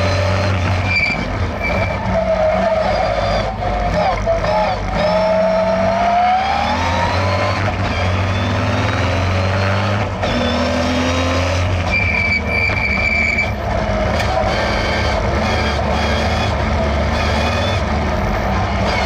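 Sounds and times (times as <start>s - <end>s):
car engine revving: 0.0s - 19.0s
steady high squeal: 0.8s - 8.7s, 11.9s - 13.6s.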